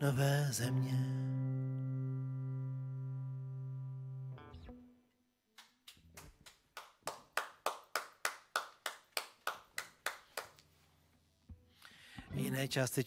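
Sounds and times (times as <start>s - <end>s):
electric guitar note: 1.0s - 5.0s
hand clapping: 5.6s - 10.7s.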